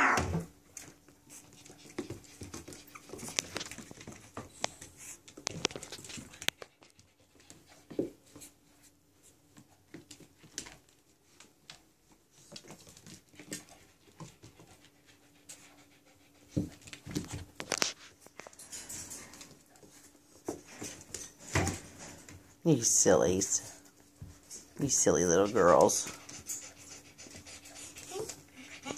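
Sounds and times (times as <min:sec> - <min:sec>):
puppies scuffling: 0:00.4 - 0:28.9
puppy panting: 0:00.8 - 0:08.7, 0:12.7 - 0:17.6, 0:23.8 - 0:28.9
puppy vocal noises: 0:25.3 - 0:28.9.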